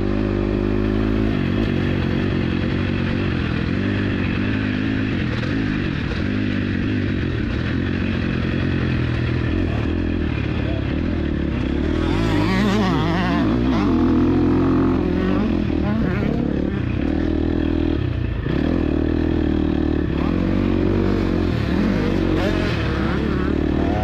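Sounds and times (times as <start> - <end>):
motocross engine revving: 0.0 - 24.0.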